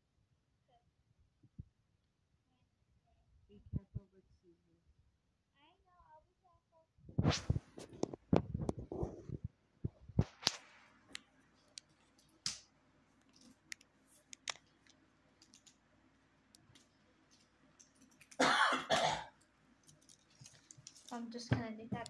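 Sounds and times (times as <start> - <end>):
plastic packaging rustling: 19.8 - 21.5.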